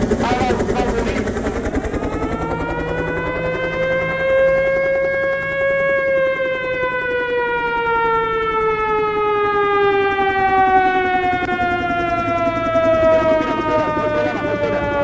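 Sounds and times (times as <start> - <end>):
air-raid siren wailing: 0.0 - 15.0.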